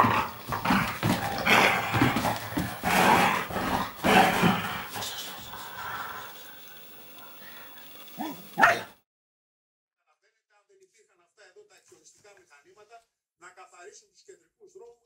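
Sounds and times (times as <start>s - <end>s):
dog growling in play: 0.0s - 9.0s.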